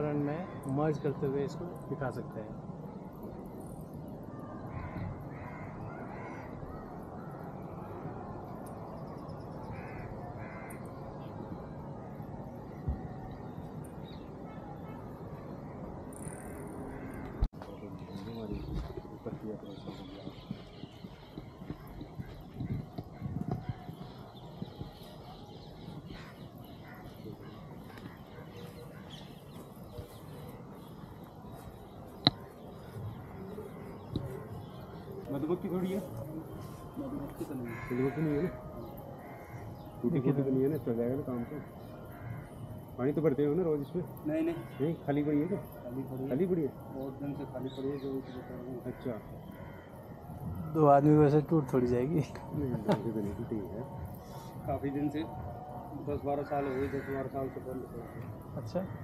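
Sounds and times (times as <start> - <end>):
distant bird calls: 0.0 - 59.0
crow cawing: 4.3 - 7.7, 9.6 - 11.0, 16.1 - 17.5, 26.1 - 30.6, 36.7 - 40.1, 41.2 - 46.1, 47.8 - 50.8, 54.0 - 54.8, 56.0 - 59.0.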